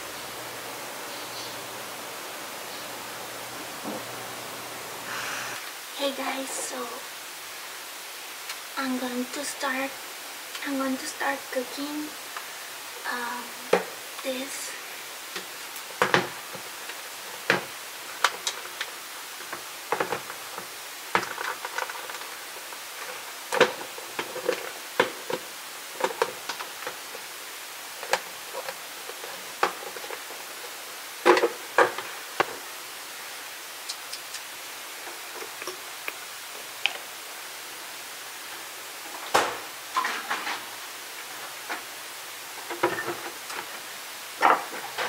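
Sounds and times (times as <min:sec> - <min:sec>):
steady hiss: 0:00.0 - 0:45.0
kitchen containers clattering: 0:40.0 - 0:40.7.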